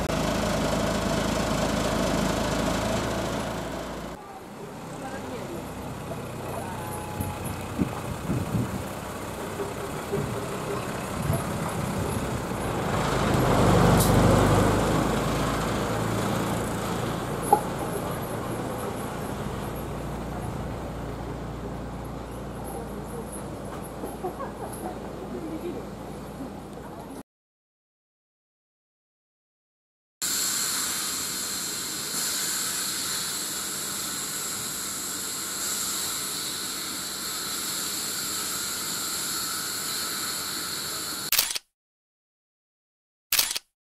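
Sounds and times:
railcar engine humming: 0.0s - 27.2s, 30.3s - 41.3s
rushing hiss noise: 30.2s - 41.3s.

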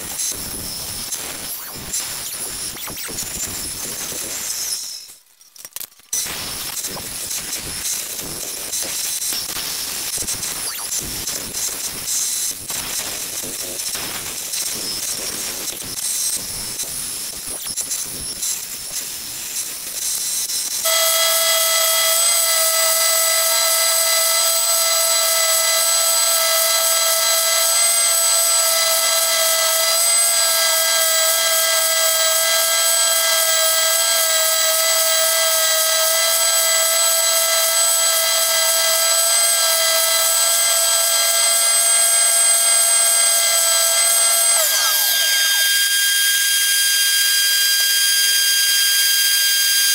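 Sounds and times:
spindle sander motor whine: 20.0s - 49.9s
bandsaw cutting wood: 20.8s - 49.9s.

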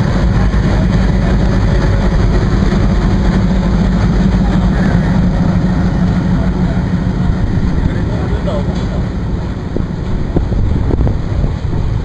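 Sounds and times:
diesel locomotive engine running: 0.0s - 12.0s
train rumbling: 0.0s - 12.0s.

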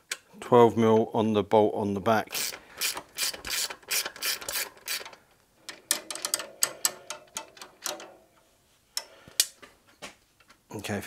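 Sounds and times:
ratchet wrench clicking: 2.3s - 5.1s.

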